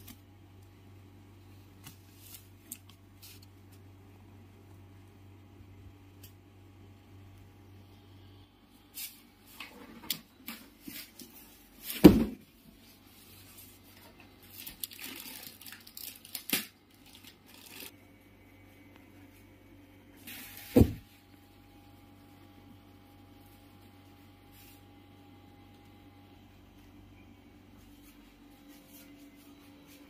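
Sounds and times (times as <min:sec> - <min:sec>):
plastic and cardboard crinkling: 0:09.0 - 0:17.9.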